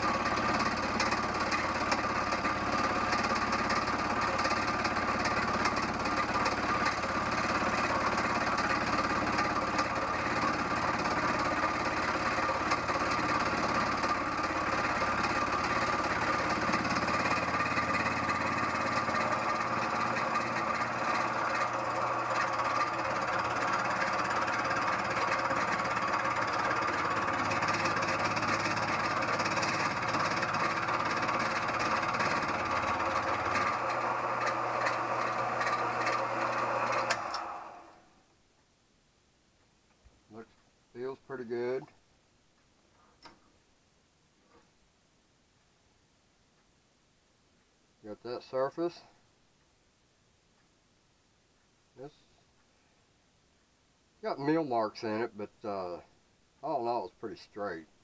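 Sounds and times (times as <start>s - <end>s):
rhythmic cutter knocking: 0.0s - 37.4s
milling machine running: 0.0s - 38.0s.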